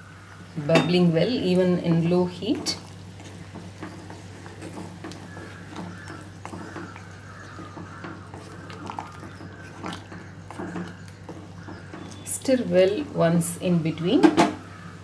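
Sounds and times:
gravy simmering and popping: 0.7 - 13.3
wooden spatula scraping and tapping: 2.3 - 13.2.

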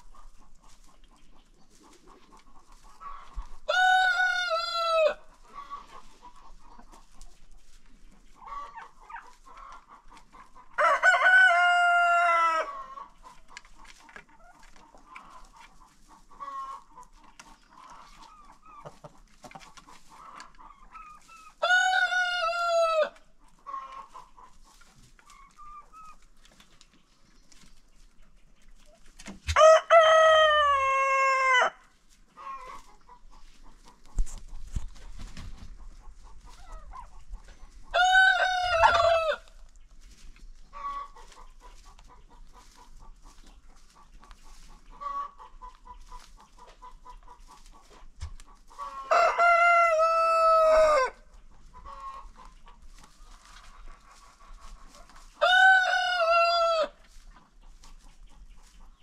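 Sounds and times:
hens clucking: 0.0 - 59.0
rooster crowing: 3.7 - 5.2, 10.8 - 12.7, 29.6 - 31.8, 37.9 - 39.4, 49.1 - 51.2, 55.4 - 56.9.

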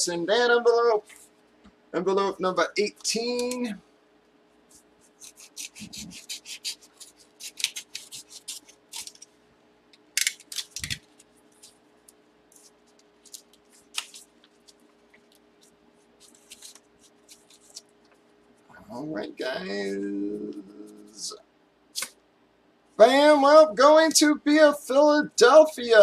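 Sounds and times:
paper rustling and crinkling: 4.7 - 9.3, 10.2 - 18.2
scissors snipping paper: 5.0 - 9.3, 10.2 - 11.8, 12.5 - 15.3, 16.2 - 17.9.

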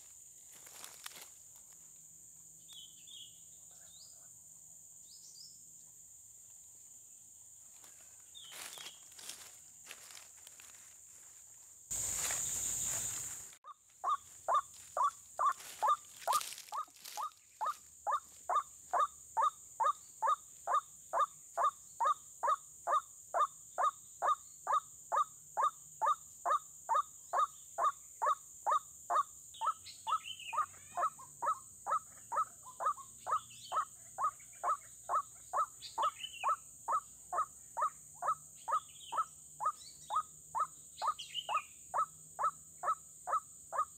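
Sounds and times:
rustling: 7.7 - 13.6
higher falling bird calls: 8.3 - 10.7, 11.9 - 21.7.

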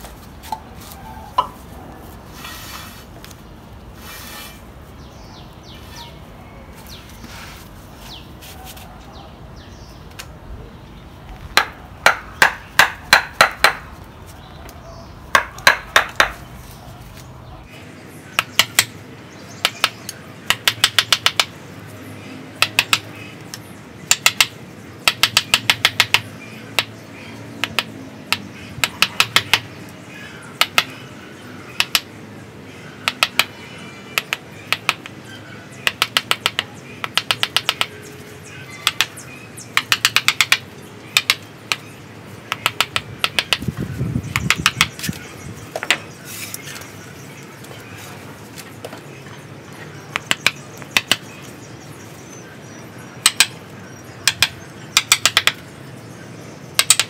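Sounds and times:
mallet striking wood chisel: 11.6 - 13.9, 15.3 - 16.4, 18.4 - 19.0, 19.6 - 21.5, 22.6 - 23.1, 24.1 - 26.9, 27.6 - 29.7, 30.6 - 31.0, 31.8 - 32.1, 33.0 - 33.5, 34.2 - 35.2, 35.8 - 38.0, 38.8 - 41.8, 42.5 - 43.7, 44.3 - 45.0, 50.1 - 51.2, 53.2 - 53.6, 54.2 - 55.6, 56.8 - 57.0.

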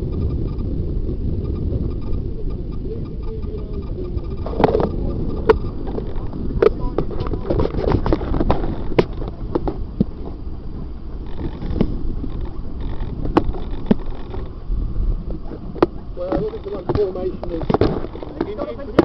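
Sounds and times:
wind rumbling on microphone: 0.0 - 19.0
sharp knocks and clatter: 4.4 - 10.4, 11.2 - 14.5, 15.7 - 19.0.

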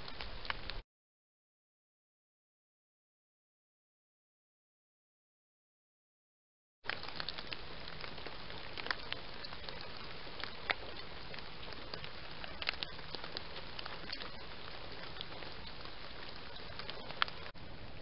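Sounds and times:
short crackles and ticks: 0.0 - 0.8, 6.8 - 18.0
microphone hiss: 6.9 - 18.0.

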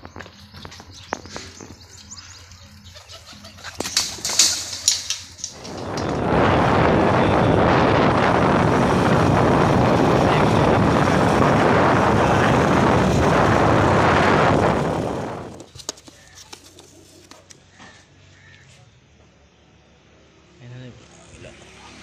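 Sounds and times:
wind on microphone: 4.6 - 15.8
moving vehicle running noise: 5.1 - 16.0.

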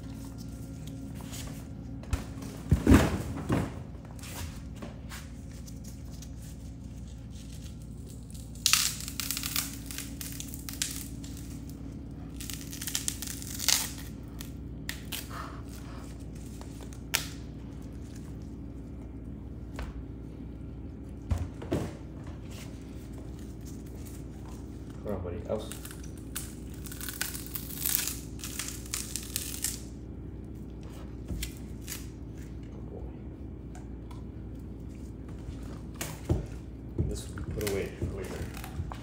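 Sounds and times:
low steady hum: 0.0 - 39.0
bone cracking and crunching: 7.8 - 15.3, 25.6 - 29.9.

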